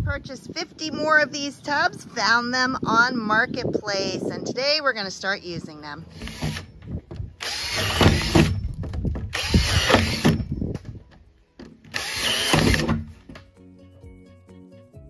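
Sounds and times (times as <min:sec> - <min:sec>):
drill boring through plastic: 0:07.4 - 0:08.6, 0:09.3 - 0:10.4, 0:11.9 - 0:13.1.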